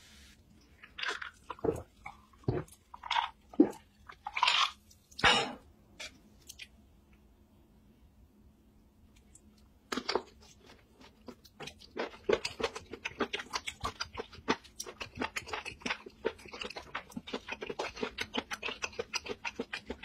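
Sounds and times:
wet chewing mouth sounds: 10.0s - 20.0s.

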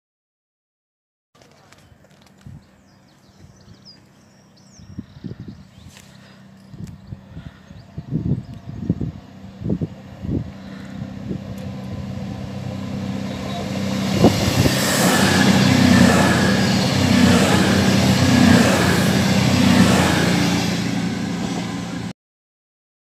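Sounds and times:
train diesel engine drone: 2.8s - 22.1s
rush of wheels and air: 4.8s - 22.1s.

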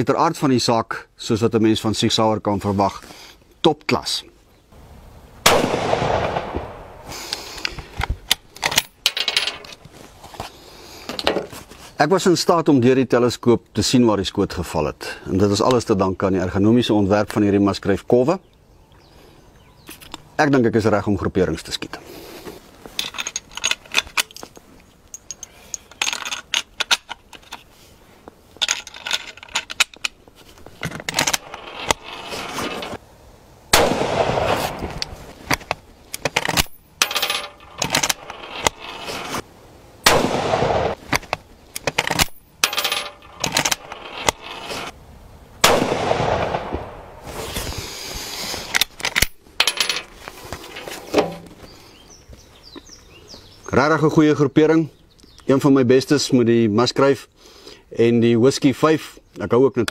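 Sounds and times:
rifle shots with echo: 5.4s - 7.1s, 33.7s - 34.8s, 40.0s - 41.0s, 45.6s - 47.2s.

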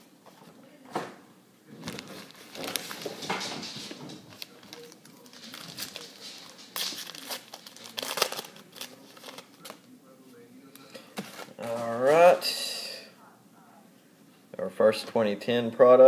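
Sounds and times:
plastic wrapper crinkling and tearing: 4.3s - 9.9s.

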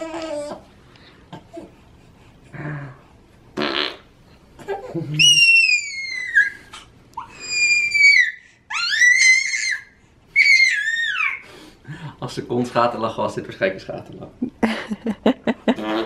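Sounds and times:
wet blowing raspberry: 3.6s - 4.1s, 15.7s - 16.0s
baby squealing: 4.7s - 11.4s.

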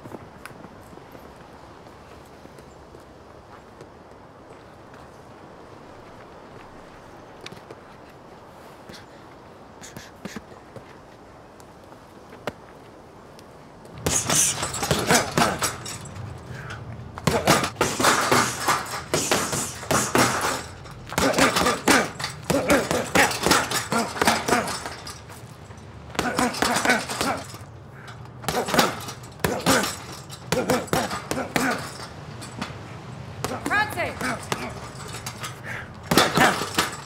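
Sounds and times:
punches hitting heavy punchbag: 14.0s - 15.8s, 17.2s - 25.0s, 26.1s - 27.6s, 28.4s - 32.0s, 33.4s - 34.9s, 36.0s - 37.0s.

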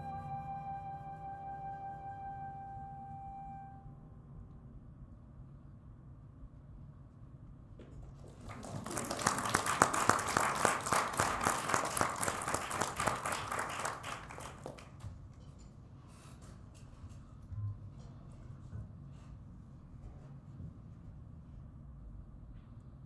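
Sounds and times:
small audience applauding: 8.0s - 15.2s.

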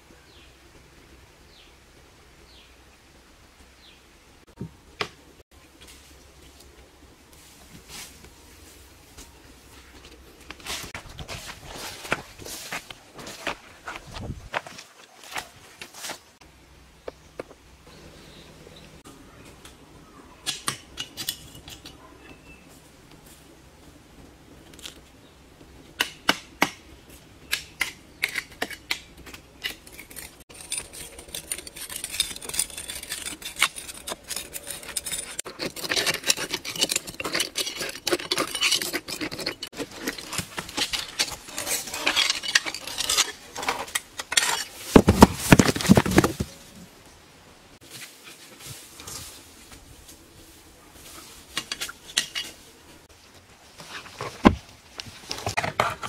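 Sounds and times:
machete scraping on stone: 27.8s - 46.6s, 51.6s - 52.6s.

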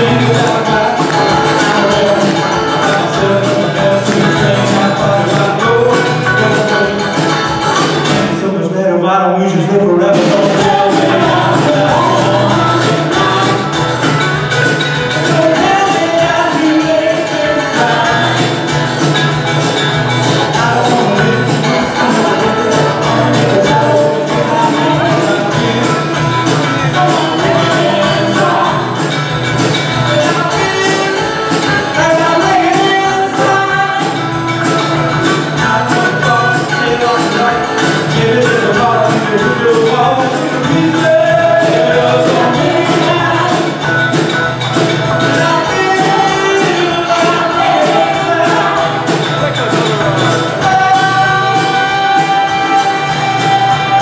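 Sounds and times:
percussive beat: 0.0s - 8.4s, 10.1s - 54.0s
acoustic and electric guitars: 0.0s - 54.0s
live rock band playing: 0.0s - 54.0s
woman singing: 10.1s - 18.8s, 20.3s - 29.2s, 30.0s - 43.9s, 45.3s - 49.6s, 50.2s - 54.0s.

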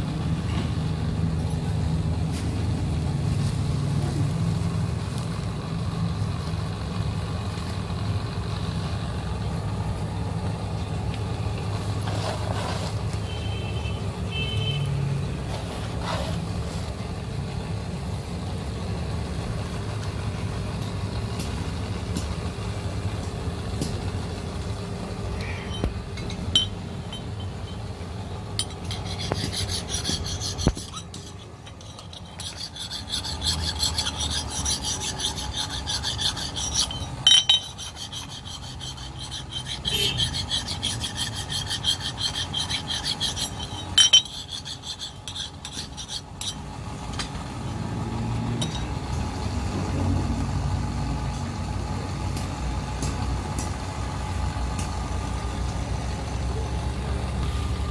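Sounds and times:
steady low hum: 16.6s - 47.3s
file rasping on steel axe: 28.6s - 46.7s.

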